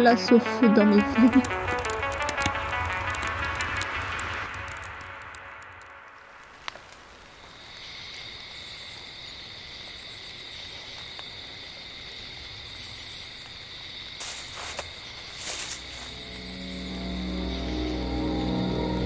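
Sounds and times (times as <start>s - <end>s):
crickets chirring: 1.0s - 19.0s
faint pulsing trill: 15.3s - 19.0s.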